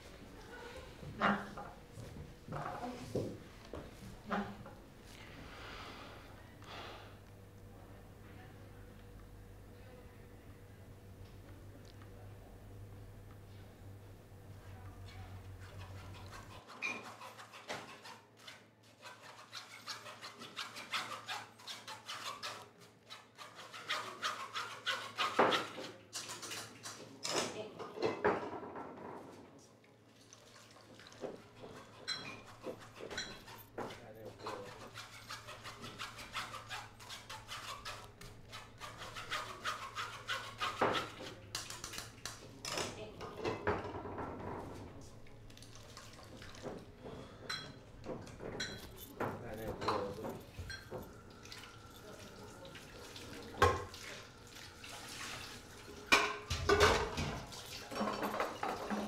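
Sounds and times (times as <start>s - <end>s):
rubbing or scratching strokes: 31.7s - 41.4s.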